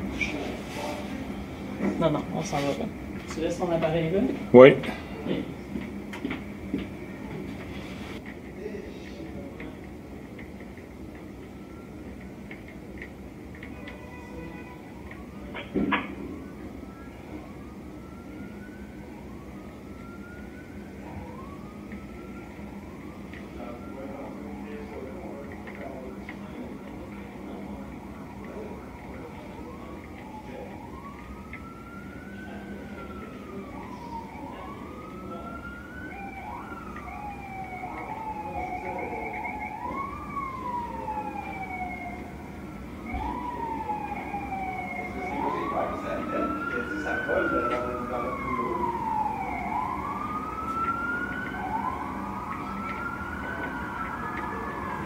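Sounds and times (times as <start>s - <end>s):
siren wailing: 0.0s - 55.0s.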